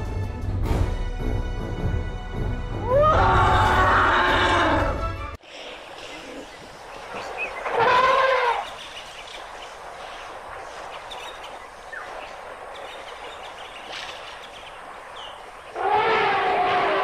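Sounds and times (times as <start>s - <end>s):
elephant trumpeting: 2.8s - 5.0s, 7.6s - 8.7s, 15.7s - 17.0s.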